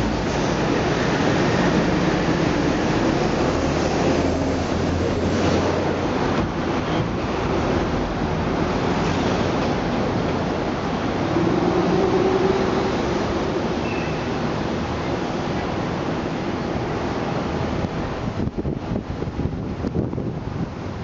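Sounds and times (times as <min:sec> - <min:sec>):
street traffic: 0:00.0 - 0:21.0
wind buffeting microphone: 0:17.0 - 0:21.0.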